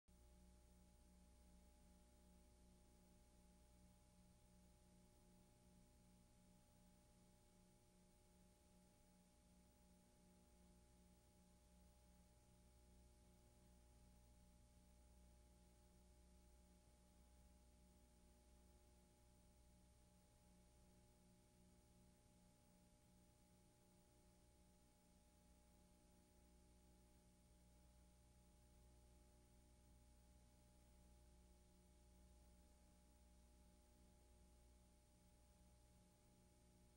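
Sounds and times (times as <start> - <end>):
faint electrical hum and hiss: 0.1 - 36.9.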